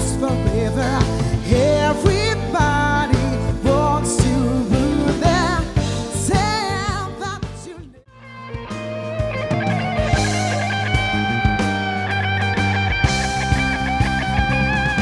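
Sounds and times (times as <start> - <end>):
live band playing: 0.0 - 15.0
electric guitar lead with vibrato: 8.1 - 15.0.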